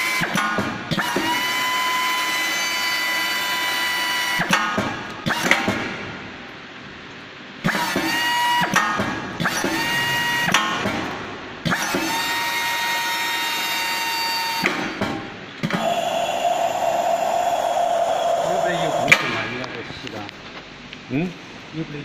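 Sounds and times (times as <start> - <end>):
reamer motor whining: 15.7 - 19.1.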